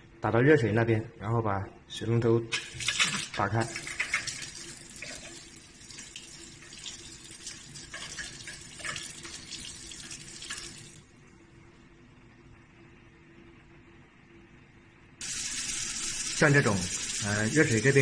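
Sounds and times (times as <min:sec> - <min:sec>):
tap water running into sink: 0:02.5 - 0:11.0, 0:15.2 - 0:18.0.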